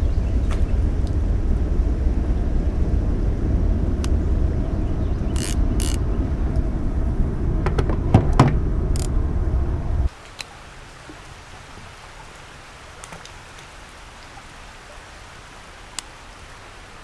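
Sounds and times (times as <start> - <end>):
low rumble: 0.0 - 10.1
fishing rod and reel handled: 5.3 - 6.0.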